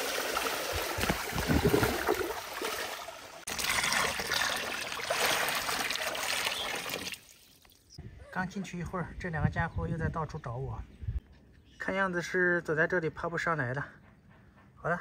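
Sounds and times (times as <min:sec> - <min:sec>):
water pouring into plastic tub: 0:00.0 - 0:07.5
water sloshing and splashing: 0:00.0 - 0:07.9.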